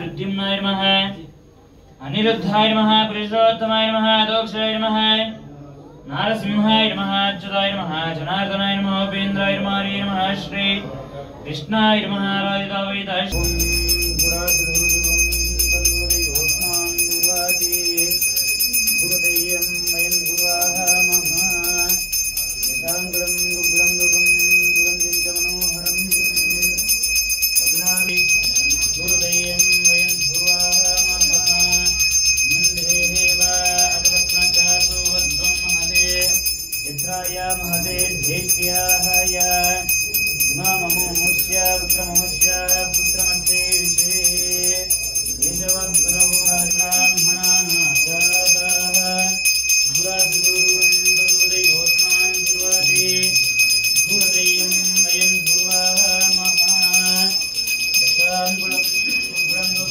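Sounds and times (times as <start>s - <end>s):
bells ringing: 13.3s - 59.9s.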